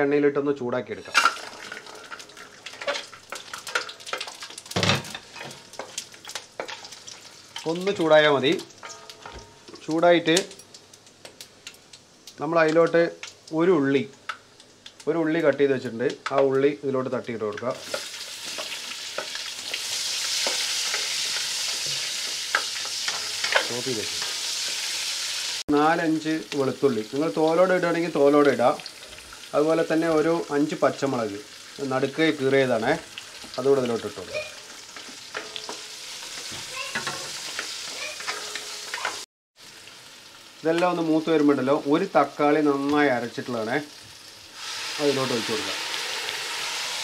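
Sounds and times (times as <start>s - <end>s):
spices sizzling in hot oil: 0.9s - 47.0s.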